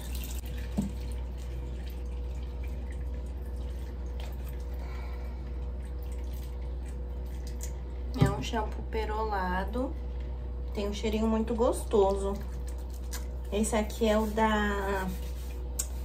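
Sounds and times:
water dripping into a sink: 0.0s - 4.8s, 5.4s - 8.6s
steady low hum: 0.0s - 16.0s.

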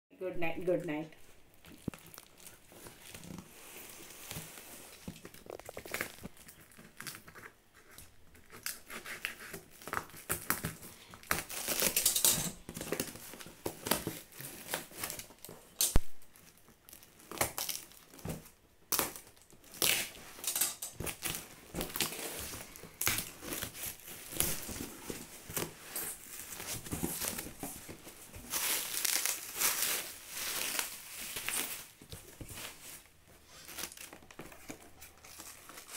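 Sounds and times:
bubble wrap crinkling: 0.9s - 35.9s
packing tape tearing: 4.2s - 35.9s
cardboard flaps rustling: 21.0s - 35.9s.

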